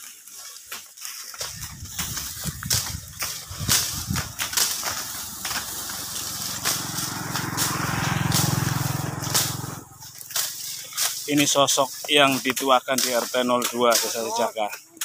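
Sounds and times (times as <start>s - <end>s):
tall grass rustling and snapping: 0.0s - 15.0s
low engine hum: 1.5s - 11.3s.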